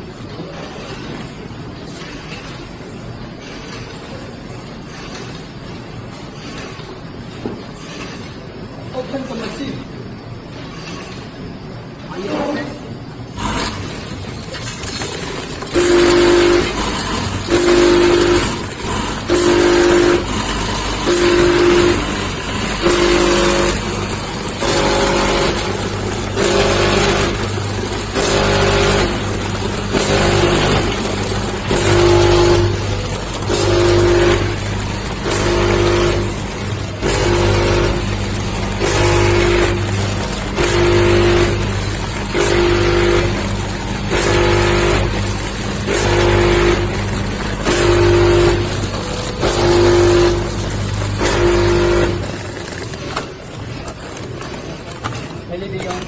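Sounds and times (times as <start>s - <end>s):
packing machine hiss: 0.5s - 56.0s
steady low machine hum: 11.3s - 55.6s.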